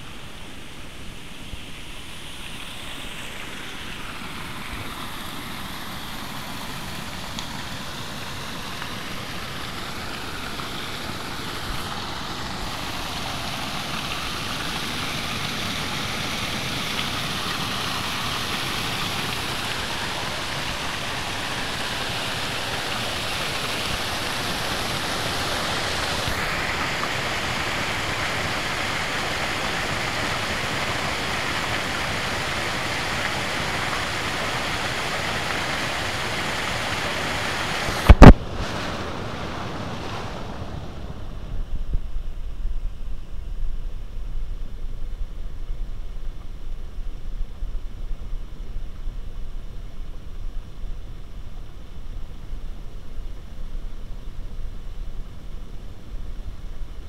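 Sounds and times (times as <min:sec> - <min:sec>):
waterfall rushing over weir: 0:00.0 - 0:41.7.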